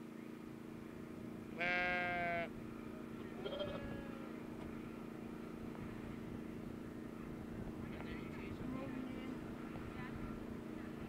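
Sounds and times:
sheep bleating: 0:01.6 - 0:02.5, 0:03.4 - 0:04.4.

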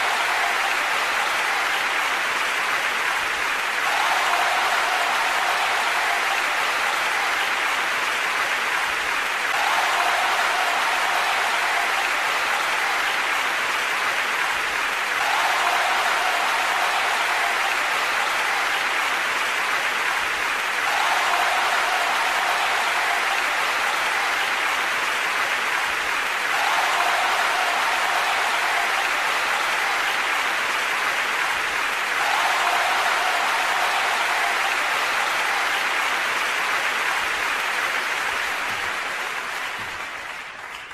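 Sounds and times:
crowd applauding: 0:00.0 - 0:40.9.

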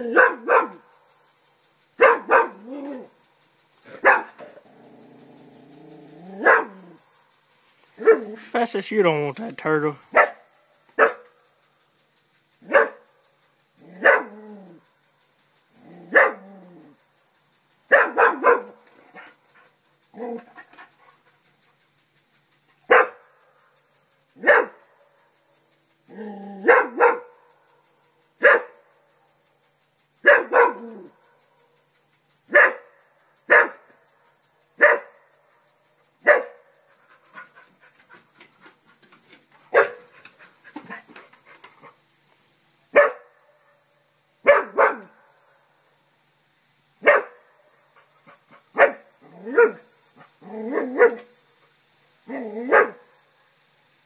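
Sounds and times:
dog barking: 0:00.0 - 0:00.8, 0:02.0 - 0:03.1, 0:03.9 - 0:04.4, 0:06.4 - 0:06.9, 0:08.0 - 0:08.4, 0:10.1 - 0:10.4, 0:11.0 - 0:11.4, 0:12.6 - 0:13.0, 0:13.9 - 0:14.4, 0:16.1 - 0:16.5, 0:17.9 - 0:19.3, 0:22.9 - 0:23.2, 0:24.4 - 0:24.8, 0:26.6 - 0:27.4, 0:28.4 - 0:28.8, 0:30.2 - 0:31.1, 0:32.5 - 0:32.9, 0:33.5 - 0:33.9, 0:34.8 - 0:35.2, 0:36.2 - 0:36.6, 0:39.7 - 0:40.1, 0:42.9 - 0:43.3, 0:44.4 - 0:45.2, 0:47.0 - 0:47.4, 0:48.8 - 0:49.9, 0:50.7 - 0:51.3, 0:52.3 - 0:53.0
dog panting: 0:18.9 - 0:21.8, 0:37.0 - 0:42.0, 0:47.9 - 0:49.0.

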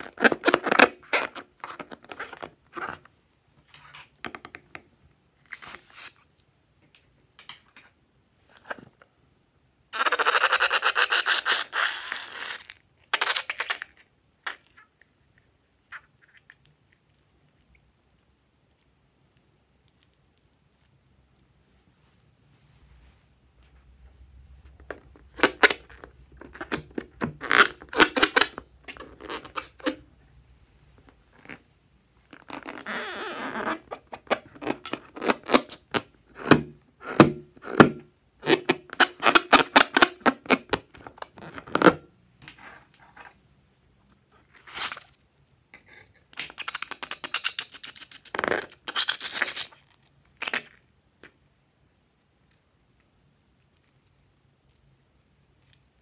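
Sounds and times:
rubbery balloon squeaks: 0:00.0 - 0:02.4, 0:10.0 - 0:13.8, 0:27.2 - 0:30.0, 0:32.3 - 0:41.9.

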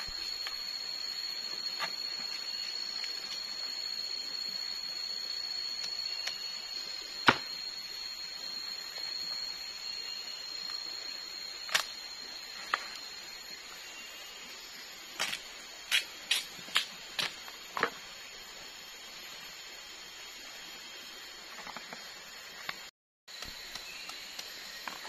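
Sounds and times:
high insect drone: 0:00.0 - 0:25.0
machete chopping: 0:07.3 - 0:07.5.

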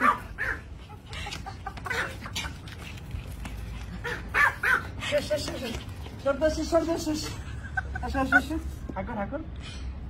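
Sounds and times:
puppy yapping and barking: 0:00.0 - 0:00.7, 0:04.1 - 0:04.9.

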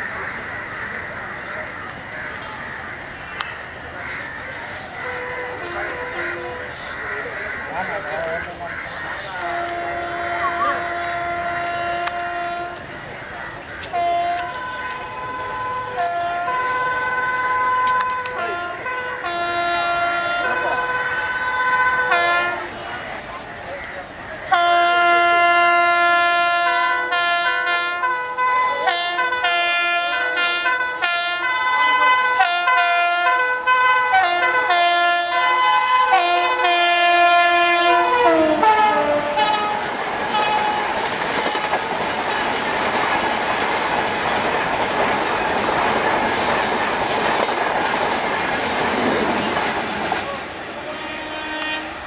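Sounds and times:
train wheels on rails clattering: 0:00.0 - 0:18.5, 0:37.8 - 0:51.8
locomotive horn honks: 0:05.0 - 0:07.0, 0:09.2 - 0:12.9, 0:13.9 - 0:22.8, 0:24.5 - 0:40.9, 0:50.8 - 0:52.0.

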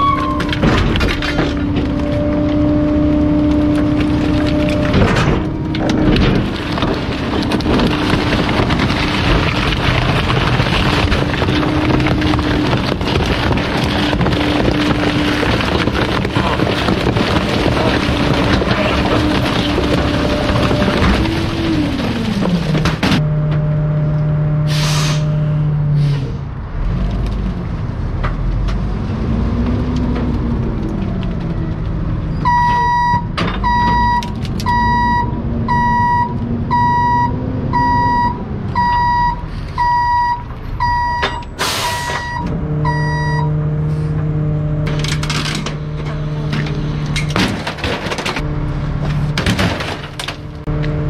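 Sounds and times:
diesel truck engine running: 0:00.0 - 0:51.0
sharp air hiss: 0:24.7 - 0:25.3
reverse alarm beeping: 0:32.4 - 0:43.6.

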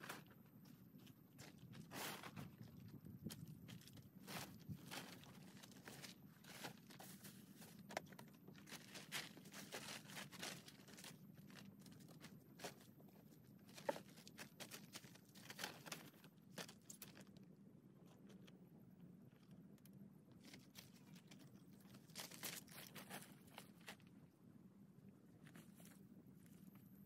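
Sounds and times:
plastic tarp crinkling: 0:08.6 - 0:12.9.

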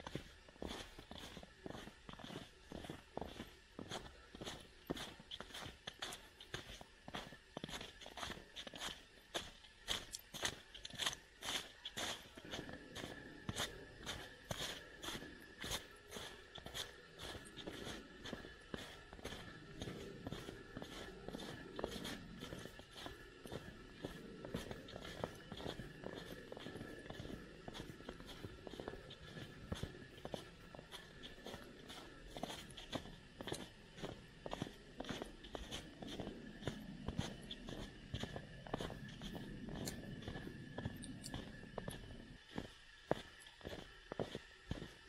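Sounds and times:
footsteps crunching in snow: 0:00.0 - 0:45.0.

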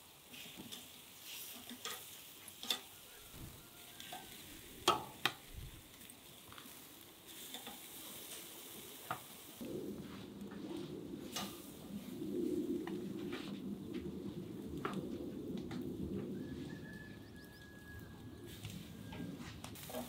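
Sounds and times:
chicken sizzling on grill: 0:00.0 - 0:13.4, 0:16.4 - 0:20.0
metal tongs clicking on grate: 0:01.5 - 0:02.9.

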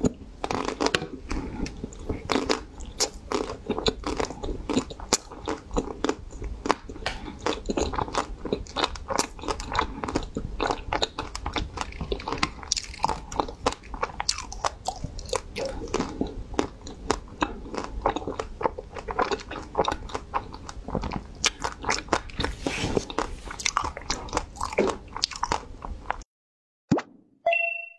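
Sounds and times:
crunchy chewing: 0:00.4 - 0:26.2.

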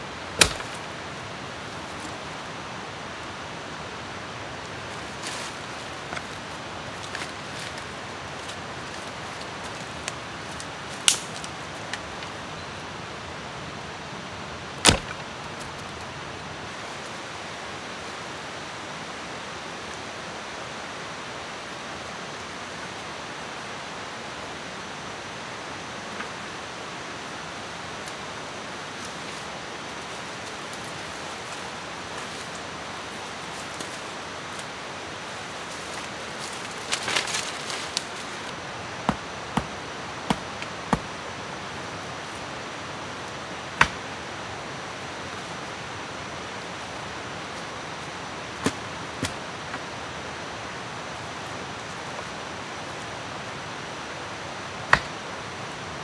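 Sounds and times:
jungle background rushing: 0:00.0 - 0:56.0
blade cutting branch: 0:00.4 - 0:00.9, 0:14.8 - 0:15.2
sharp snaps: 0:11.0 - 0:11.5.

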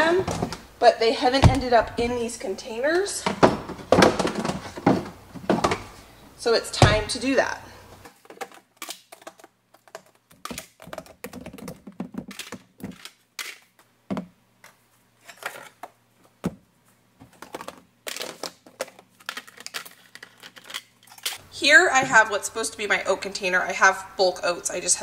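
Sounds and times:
plastic containers clacking: 0:03.2 - 0:06.0, 0:08.0 - 0:16.6, 0:17.2 - 0:21.4.

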